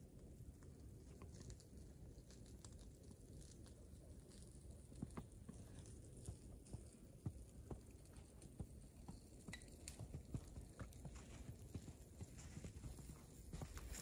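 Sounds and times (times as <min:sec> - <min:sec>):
footsteps crunching in snow: 0:12.2 - 0:14.0.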